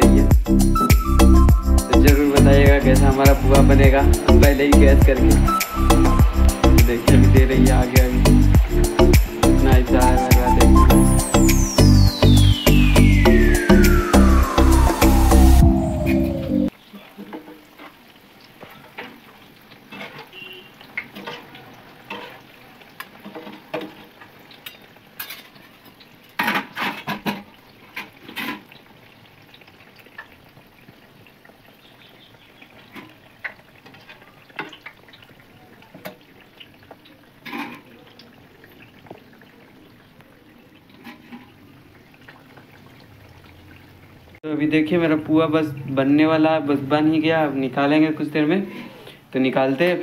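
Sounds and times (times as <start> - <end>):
fritters sizzling in hot oil: 2.8 - 15.8, 16.7 - 50.0
metal spoon clinking and scraping pan: 19.9 - 20.3, 21.0 - 25.7.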